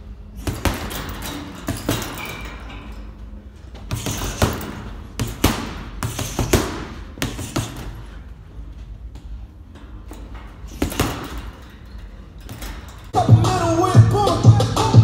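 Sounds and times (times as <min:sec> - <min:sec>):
gloves punching heavy bag: 0:00.3 - 0:02.6, 0:03.8 - 0:08.3, 0:10.7 - 0:11.6.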